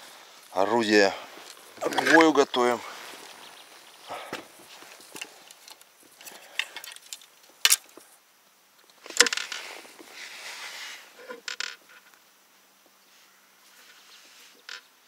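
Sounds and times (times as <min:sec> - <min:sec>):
fishing gear clicks and knocks: 0:01.4 - 0:02.4, 0:04.2 - 0:08.1, 0:08.8 - 0:09.6.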